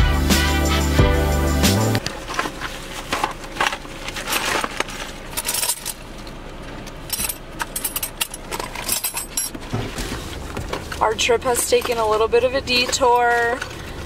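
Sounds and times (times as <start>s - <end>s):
plastic rustling and crinkling: 2.0s - 5.4s, 9.6s - 14.0s.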